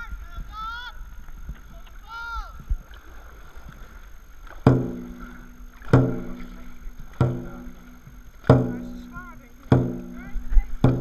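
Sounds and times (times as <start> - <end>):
deep drum strikes: 4.6 - 11.0.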